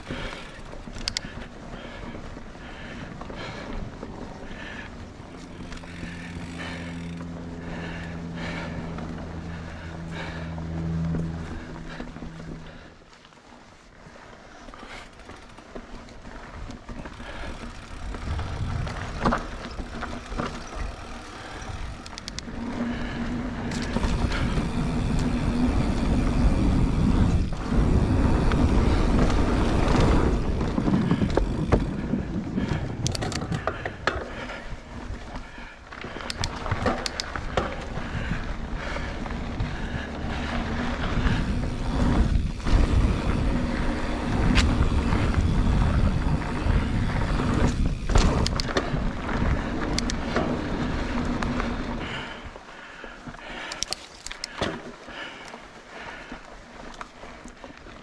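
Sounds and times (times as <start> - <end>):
tyre and wind rumble: 0.0 - 58.0
bike clattering over bumps: 14.6 - 58.0.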